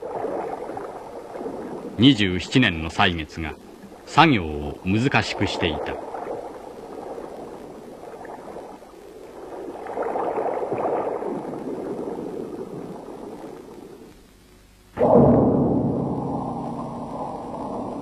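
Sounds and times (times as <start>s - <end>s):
underwater bubbling and gurgling: 0.0s - 14.3s, 15.0s - 18.0s.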